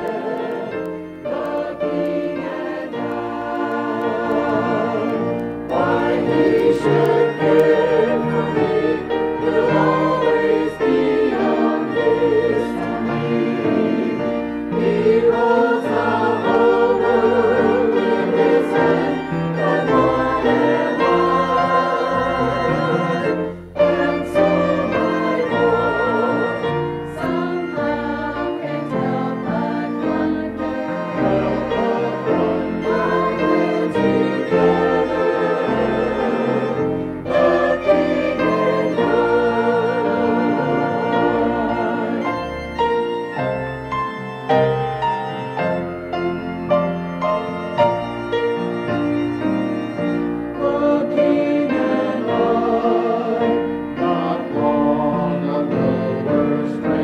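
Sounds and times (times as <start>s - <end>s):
choir singing a hymn: 0.0s - 57.0s.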